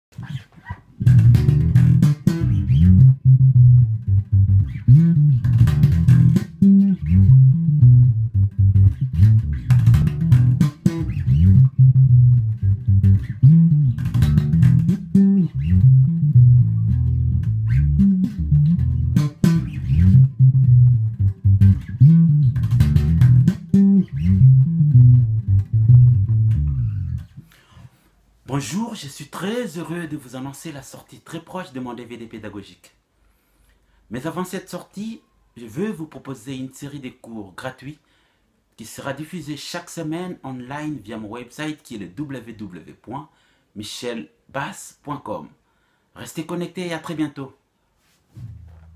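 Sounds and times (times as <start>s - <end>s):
slap electric bass guitar: 0.1s - 27.5s, 48.4s - 48.9s.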